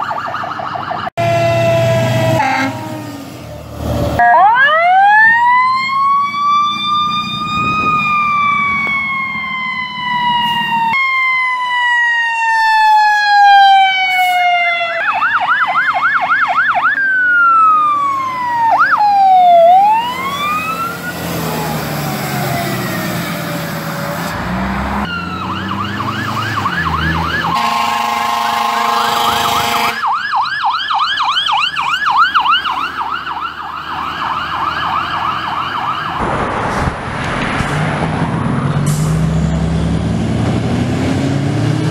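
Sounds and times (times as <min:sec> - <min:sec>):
sirens wailing and yelping: 0:00.0 - 0:39.9
multi-tone air horn blast: 0:01.2 - 0:03.2, 0:14.0 - 0:14.4, 0:27.5 - 0:30.1
vehicle engines running: 0:19.6 - 0:29.8, 0:31.3 - 0:41.9.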